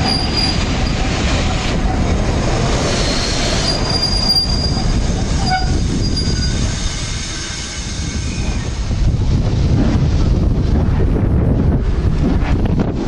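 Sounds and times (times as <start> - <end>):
high thin wheel squeals: 0.0 - 1.1, 2.9 - 8.7
train wheels rumbling on rails: 0.0 - 13.0.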